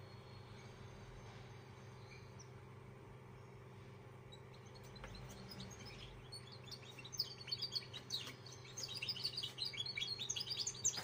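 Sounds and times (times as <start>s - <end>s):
steady low hum: 0.0s - 11.0s
finch singing twittering chirps: 1.7s - 2.6s, 3.3s - 11.0s.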